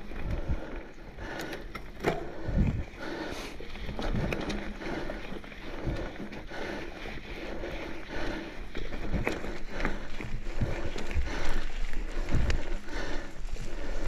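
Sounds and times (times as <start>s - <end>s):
bike knocking and rattling: 0.0s - 14.0s
bike tyres rolling over dirt: 0.0s - 14.0s
wind rumble on microphone: 2.4s - 3.0s, 8.9s - 14.0s.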